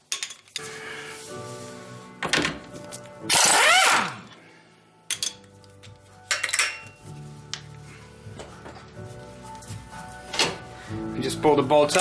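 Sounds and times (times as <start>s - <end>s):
power tool whining: 3.3s - 4.2s.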